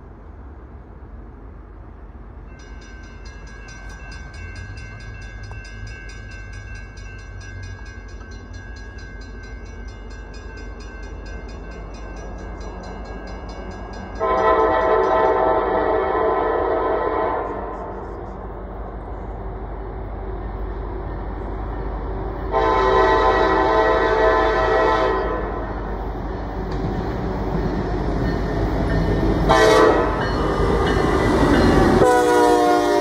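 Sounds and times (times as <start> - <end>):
train rumbling: 0.0 - 33.0
locomotive horn: 14.2 - 18.1, 22.5 - 25.8, 29.4 - 30.3, 31.8 - 33.0.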